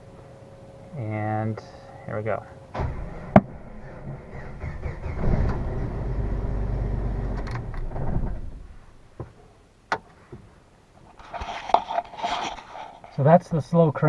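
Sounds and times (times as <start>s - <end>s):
starter cranking engine slowly: 3.1s - 8.3s.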